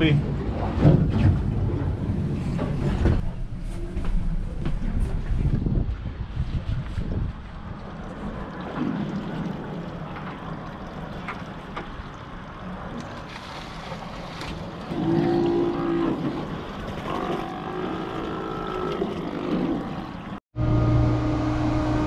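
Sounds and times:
wind on microphone: 0:00.8 - 0:08.4
outboard motors running: 0:19.5 - 0:22.0.

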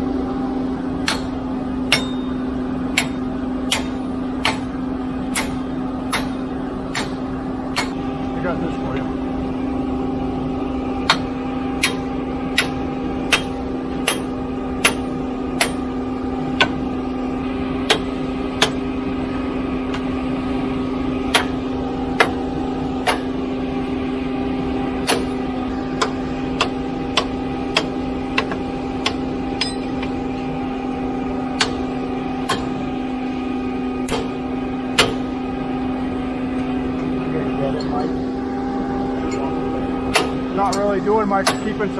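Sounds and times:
truck engine drone: 0:00.0 - 0:41.9
hammer striking steel clamp: 0:01.1 - 0:02.4, 0:26.0 - 0:30.1.

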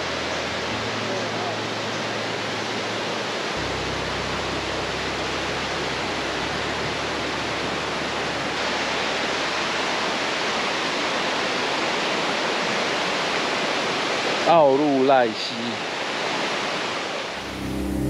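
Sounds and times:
stream rushing over rocks: 0:00.0 - 0:17.5.

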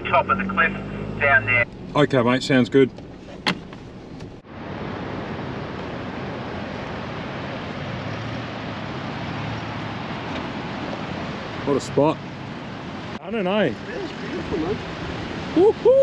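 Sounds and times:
ocean surf breaking: 0:04.5 - 0:16.0.

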